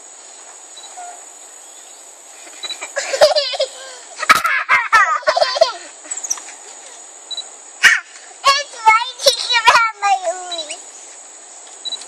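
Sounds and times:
high insect drone: 0.0s - 12.0s
children laughing: 2.3s - 7.2s, 7.8s - 10.7s.

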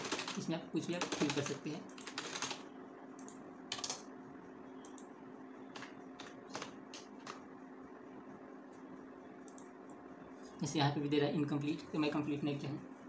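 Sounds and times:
faint steady hum: 0.0s - 13.0s
keyboard keys tapping: 5.7s - 7.4s.

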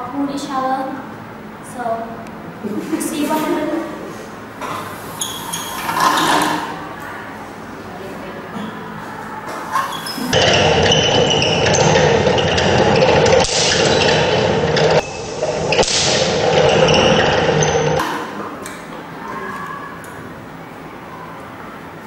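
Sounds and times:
spinning disks whirring: 10.2s - 18.0s
sharp electric cracks: 10.3s - 18.0s.

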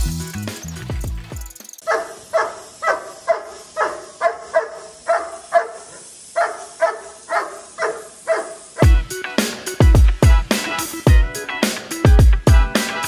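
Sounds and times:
dog barking: 1.8s - 8.9s.

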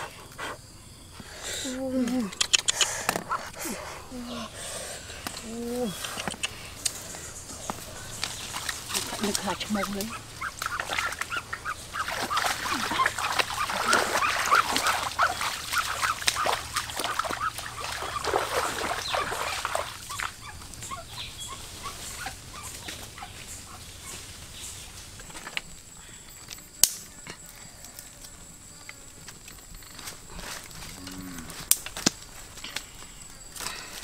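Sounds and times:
wings splashing in muddy water: 8.3s - 20.6s
chicken squawking: 10.0s - 23.8s
sharp snap: 26.8s - 27.1s.

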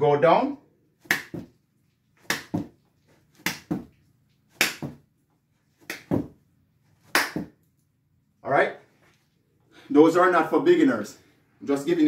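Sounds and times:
sharp hand clap: 1.0s - 1.5s, 2.2s - 2.7s, 3.4s - 3.9s, 4.6s - 5.0s, 5.8s - 6.3s, 7.1s - 7.6s
hands thudding on carpet: 5.8s - 6.4s.

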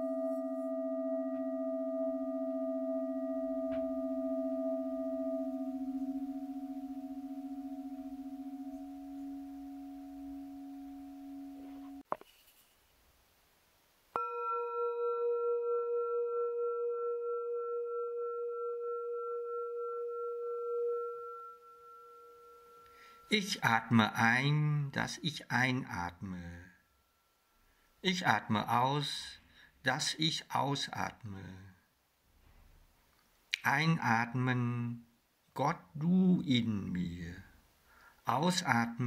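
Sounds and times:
high singing bowl struck: 0.0s - 12.0s, 14.2s - 22.9s
low singing bowl ringing: 0.0s - 12.0s, 14.2s - 23.4s.

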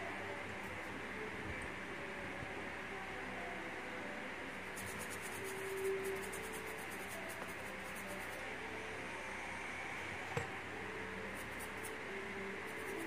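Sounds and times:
brush scratching on chip: 4.6s - 8.4s, 11.3s - 13.0s.

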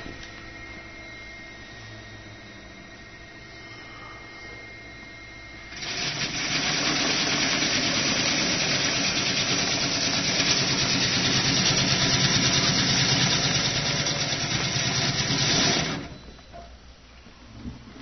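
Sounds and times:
vegetable cutting machine whirring: 5.3s - 16.3s.

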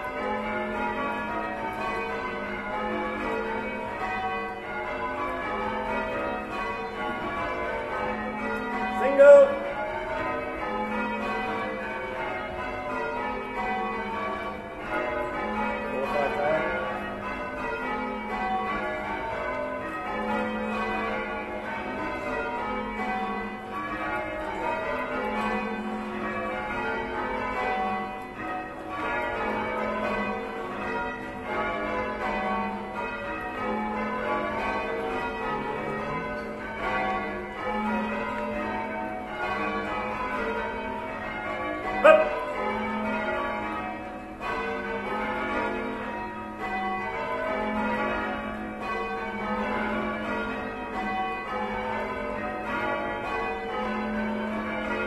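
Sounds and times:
church bells ringing: 0.0s - 55.0s
person shouting: 9.1s - 9.6s, 42.0s - 42.4s.

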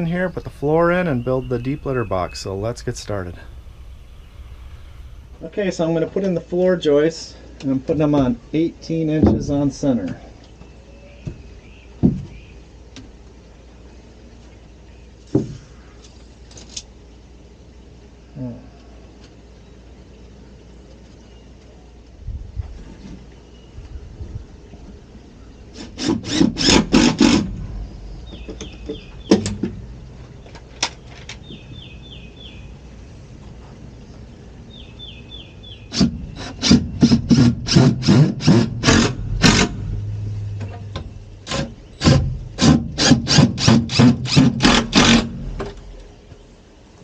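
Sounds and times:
small bird chirping: 27.8s - 33.2s, 34.0s - 36.4s.

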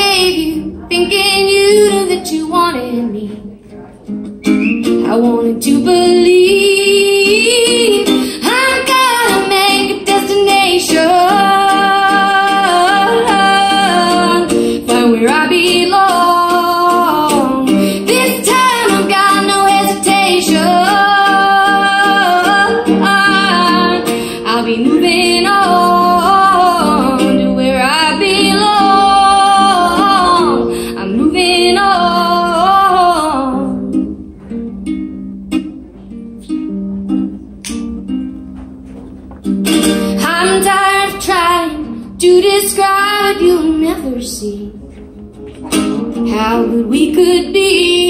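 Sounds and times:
strummed ukulele: 0.0s - 48.0s
woman singing through pa: 4.9s - 34.0s, 46.2s - 48.0s.

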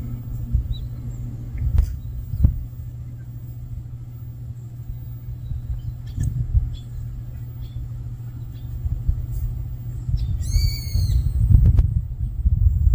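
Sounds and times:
faint high chirps: 0.0s - 11.5s
low outdoor rumble: 0.0s - 12.9s.

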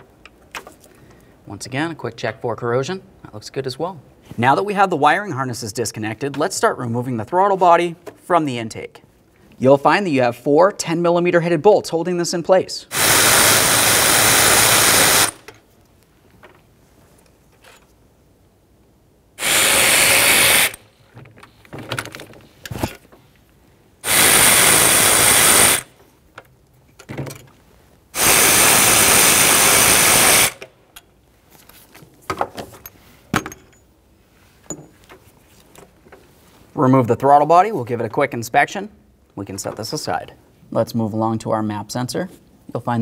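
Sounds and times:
power ratchet spinning bolts: 12.9s - 15.5s, 19.4s - 20.8s, 24.0s - 25.9s, 28.2s - 30.6s.

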